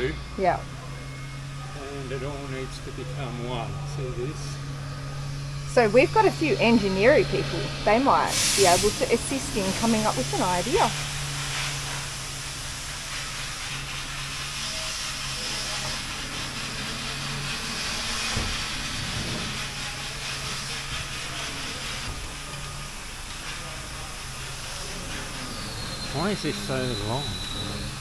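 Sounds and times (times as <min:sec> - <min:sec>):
low steady hum: 0:00.0 - 0:28.0
hiss of rushing air: 0:07.2 - 0:28.0.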